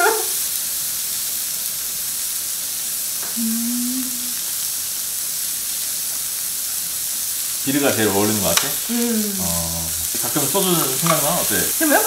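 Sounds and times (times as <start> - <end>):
beef sizzling on a grill: 0.0 - 12.0
person humming mm: 3.3 - 4.4, 8.8 - 10.1.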